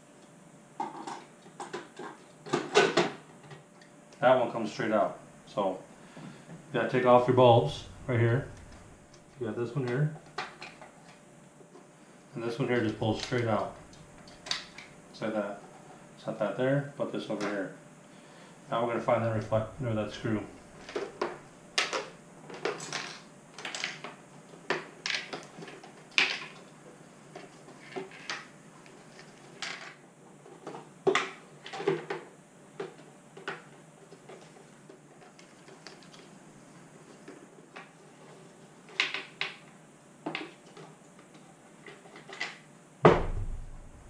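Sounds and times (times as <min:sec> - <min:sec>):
plastic parts clicking and clattering: 0:20.8 - 0:26.7, 0:40.3 - 0:42.6.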